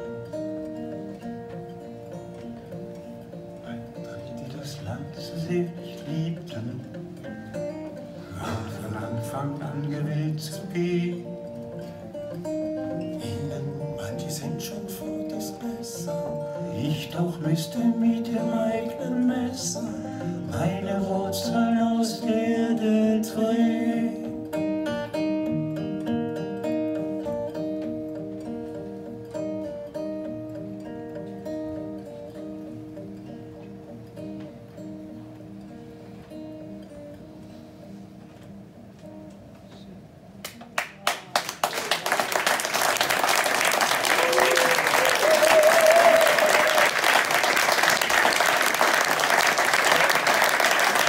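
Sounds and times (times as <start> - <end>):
acoustic guitar picked notes: 0.0 - 41.0
audience applause: 40.8 - 51.0.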